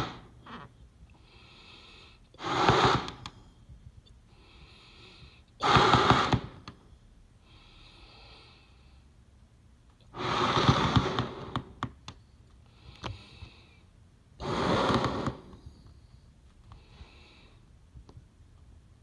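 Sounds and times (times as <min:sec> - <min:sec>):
person blowing up a balloon: 0:02.4 - 0:03.3, 0:05.6 - 0:06.6, 0:10.1 - 0:11.8, 0:14.4 - 0:15.6.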